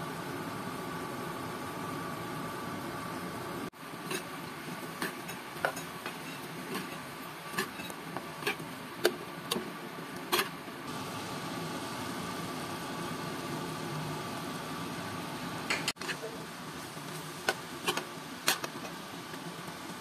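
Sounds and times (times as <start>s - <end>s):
metal spoon scraping frying pan: 4.0s - 4.3s, 5.0s - 8.7s
chicken sizzling in pan: 10.3s - 20.0s.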